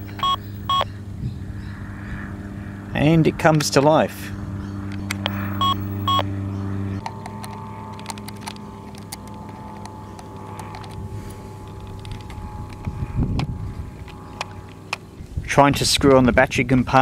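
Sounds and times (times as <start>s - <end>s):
short electronic beeps: 0.0s - 0.9s, 5.3s - 6.3s
electronic hum: 0.0s - 2.9s, 4.3s - 15.4s.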